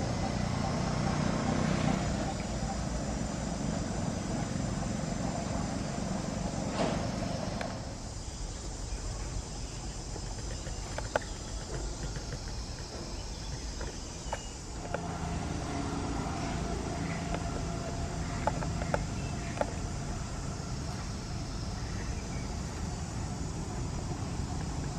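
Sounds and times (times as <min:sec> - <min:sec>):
faint clicks: 0:10.1 - 0:15.0.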